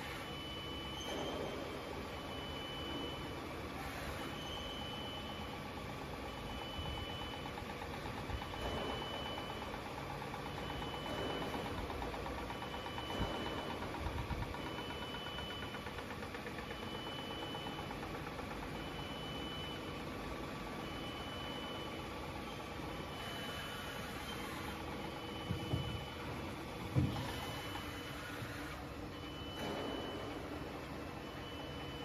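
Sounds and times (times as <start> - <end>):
high machine tone: 0.0 - 32.0
loud machine bumps: 0.9 - 2.3, 8.4 - 9.8, 10.5 - 15.2, 25.4 - 31.8.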